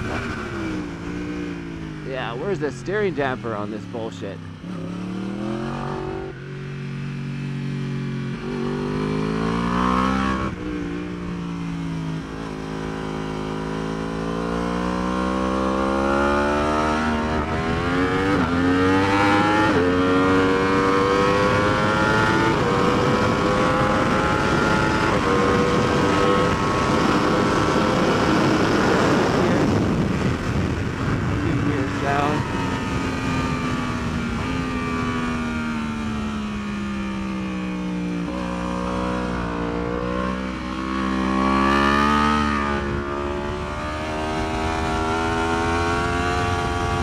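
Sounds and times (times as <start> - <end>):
motorcycle engine accelerating: 0.0 - 47.0
wind rush: 21.6 - 35.3.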